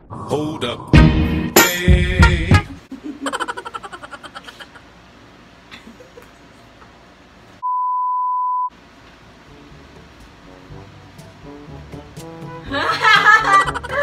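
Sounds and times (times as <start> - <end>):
high pure beep: 7.6 - 8.7.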